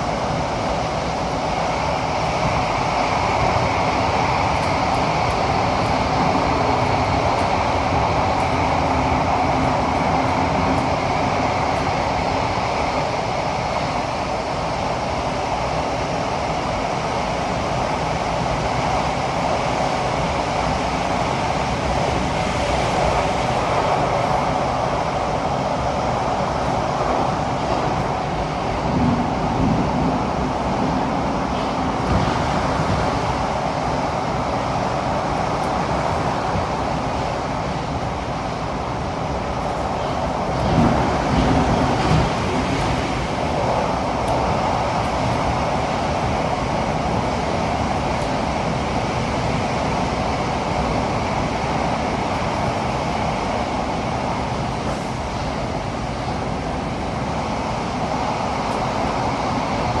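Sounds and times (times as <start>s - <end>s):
train wheels rumbling on rail: 0.0s - 60.0s
train bumps: 17.7s - 60.0s.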